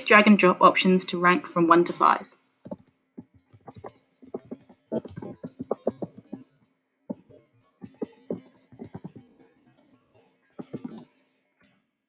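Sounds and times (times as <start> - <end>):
typing on computer keyboard: 7.8 - 9.2.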